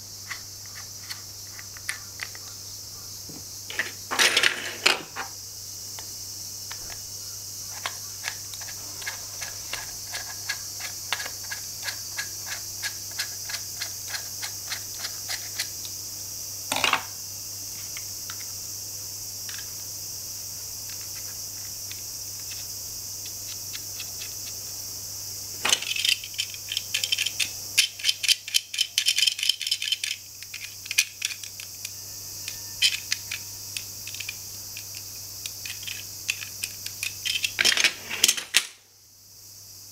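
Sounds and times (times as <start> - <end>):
low hum and hiss: 0.0 - 39.9
plastic toy bolt clicking: 7.8 - 15.7, 32.5 - 38.8.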